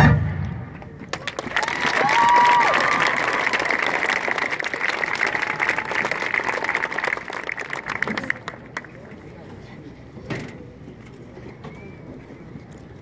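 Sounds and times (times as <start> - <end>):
crowd cheering: 0.7 - 9.2
crowd applauding: 0.8 - 9.3.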